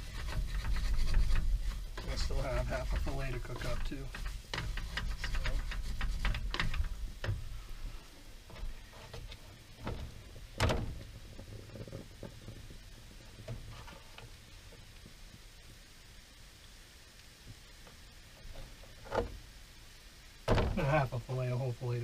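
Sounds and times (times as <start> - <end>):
wooden spatula scraping a pan: 0.0 - 9.4.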